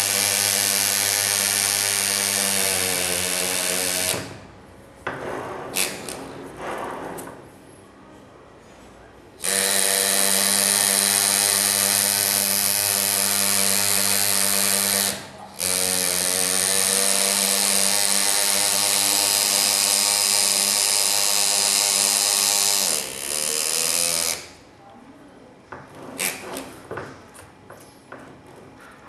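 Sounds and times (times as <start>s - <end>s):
pneumatic engraver buzzing: 0.0s - 4.5s, 5.8s - 6.2s, 9.4s - 24.6s.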